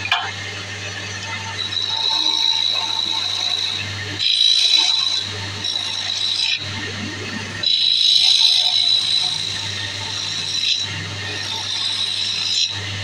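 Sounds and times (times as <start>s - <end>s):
wood lathe humming: 0.0s - 13.0s
turning tool scraping wood: 1.6s - 6.7s, 7.6s - 12.8s.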